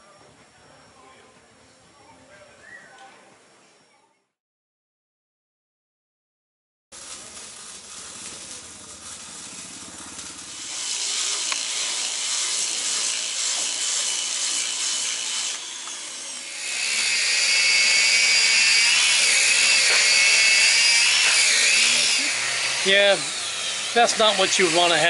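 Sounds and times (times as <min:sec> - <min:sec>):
angle grinders sanding: 0:07.0 - 0:25.0.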